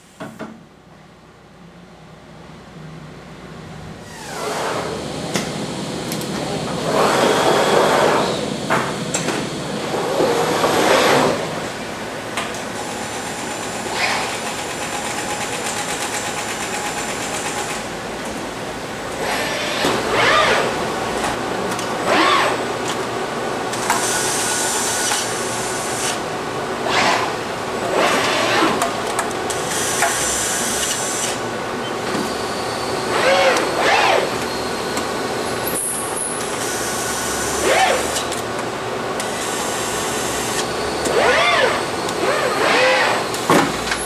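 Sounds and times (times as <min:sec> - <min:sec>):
machinery hum: 0:00.0 - 0:44.0
servo motors whining: 0:19.2 - 0:20.8, 0:26.8 - 0:28.8, 0:33.1 - 0:34.6, 0:36.6 - 0:38.4, 0:39.2 - 0:43.5.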